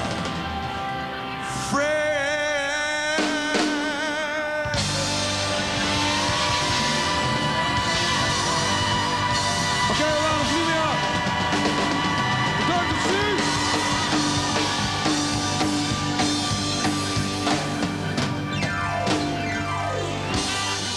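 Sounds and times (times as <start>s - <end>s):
live rock band playing: 0.0s - 20.9s
drum kit with cymbals: 3.2s - 19.6s.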